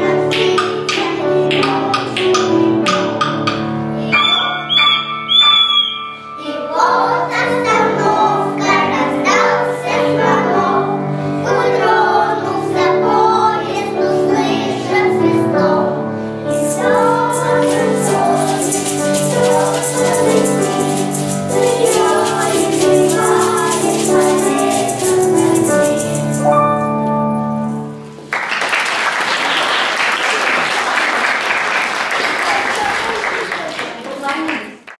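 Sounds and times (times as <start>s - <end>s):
children's choir singing: 0.0s - 26.5s
piano accompaniment: 0.0s - 31.3s
high rattling rhythm: 16.5s - 26.6s.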